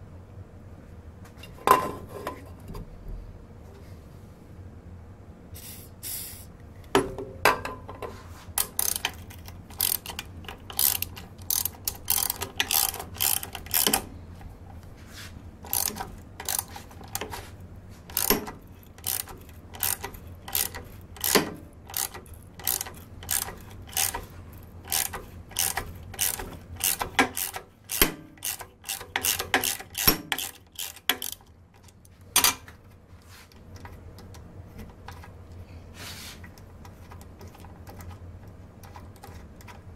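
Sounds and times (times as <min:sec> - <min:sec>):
metal vise clicks and clacks: 0:08.6 - 0:14.1, 0:15.7 - 0:17.4, 0:18.1 - 0:24.3, 0:24.9 - 0:32.7.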